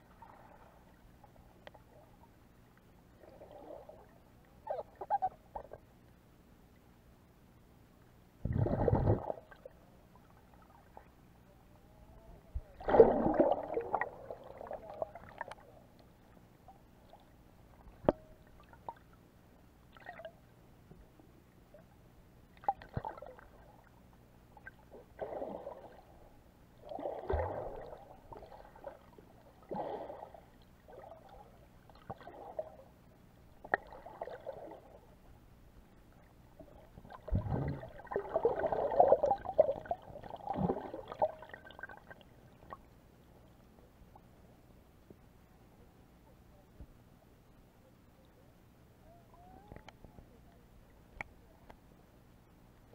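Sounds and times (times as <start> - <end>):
underwater gurgling swishes: 3.1 - 5.8, 8.4 - 11.2, 12.5 - 16.1, 22.5 - 24.0, 24.6 - 35.3, 36.1 - 42.9.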